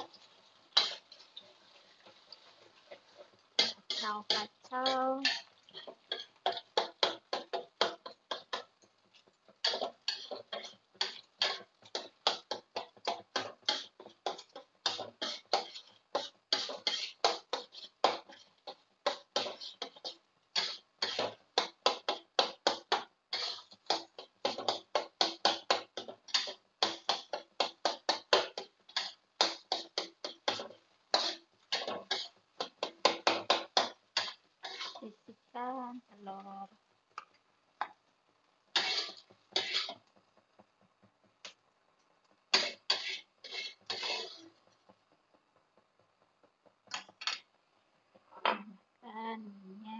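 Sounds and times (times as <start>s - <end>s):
spatula scraping and tapping wok: 0.0s - 35.2s, 37.1s - 48.6s.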